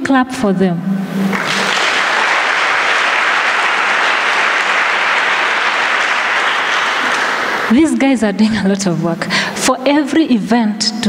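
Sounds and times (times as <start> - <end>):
congregation applauding: 1.2 - 7.8.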